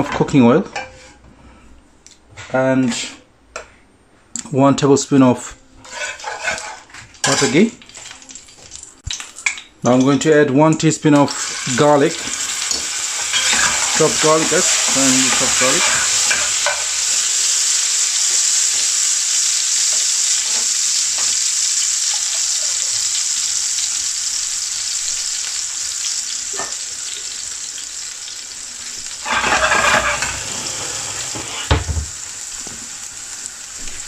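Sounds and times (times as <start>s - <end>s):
garlic sizzling in oil: 5.8s - 9.7s, 11.2s - 34.0s.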